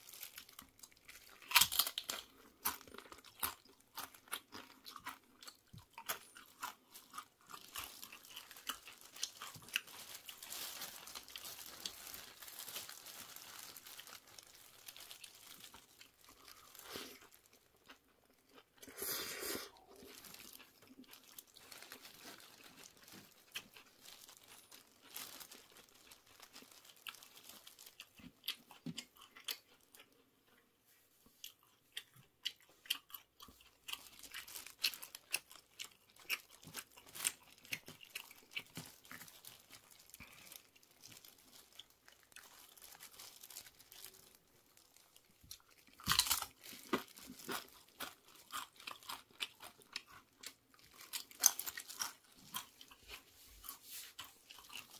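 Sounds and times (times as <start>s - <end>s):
tortilla chips crunching: 0.0s - 19.0s, 19.7s - 30.2s, 31.5s - 54.9s
wet chewing: 31.4s - 54.9s.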